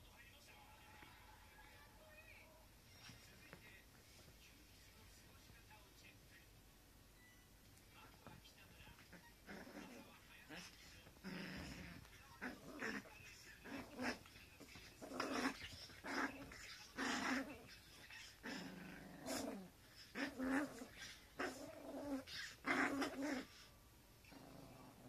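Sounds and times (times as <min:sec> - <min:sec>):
small dogs growling: 0:09.0 - 0:25.0.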